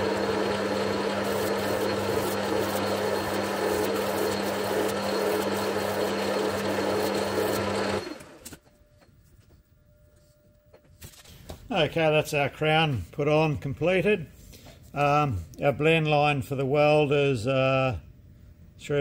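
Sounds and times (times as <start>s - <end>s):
abrasive cloth polishing metal: 0.0s - 8.0s
metal lathe humming: 0.0s - 8.4s
lathe running down: 0.0s - 8.5s.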